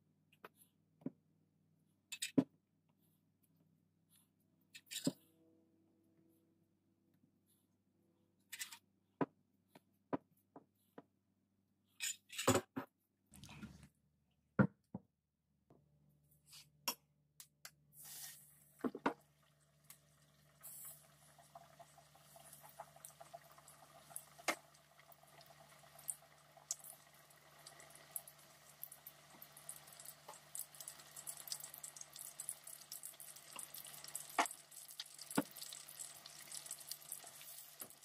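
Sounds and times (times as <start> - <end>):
oil sizzling in deep fryer: 18.0 - 38.0.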